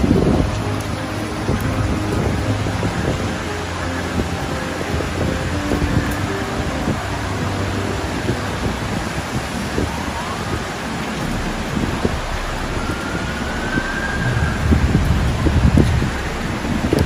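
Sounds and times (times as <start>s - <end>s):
rain hissing: 0.0s - 17.0s
wind: 0.0s - 17.0s
faint siren rising: 9.9s - 17.0s.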